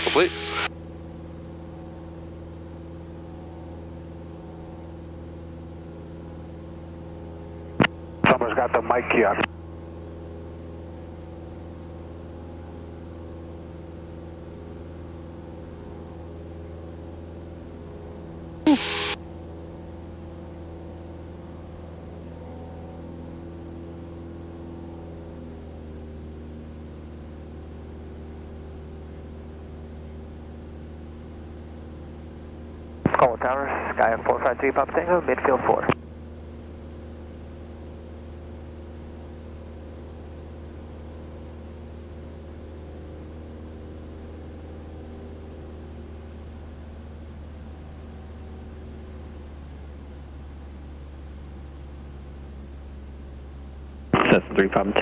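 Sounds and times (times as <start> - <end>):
faint high-pitched whine: 0.0 - 0.7, 49.2 - 55.0
faint high whine: 0.0 - 55.0
propeller plane engine droning: 0.0 - 55.0.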